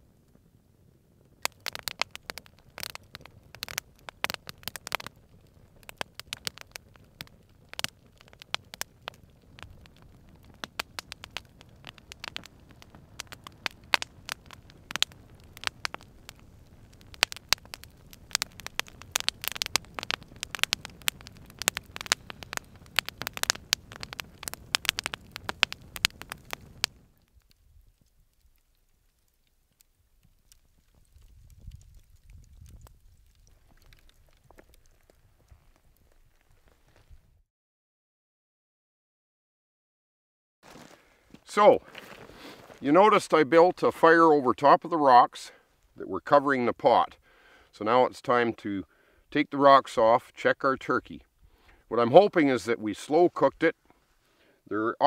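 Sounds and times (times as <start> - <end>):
wood fire crackling: 0.0 - 37.4, 40.6 - 55.0
sharp pops of fire: 1.2 - 37.2, 40.6 - 46.0.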